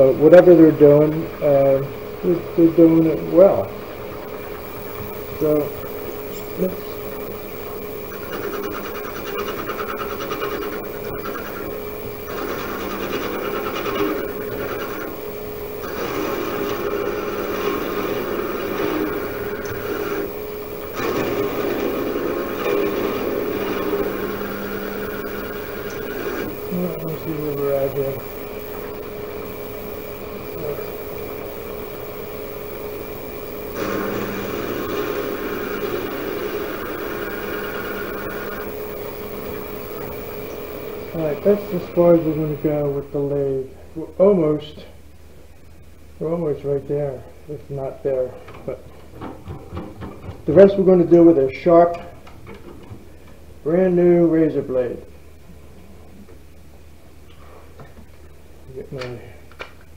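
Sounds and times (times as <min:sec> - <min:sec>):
lathe humming: 0:00.0 - 0:43.4
high-pitched whine: 0:00.0 - 0:43.7.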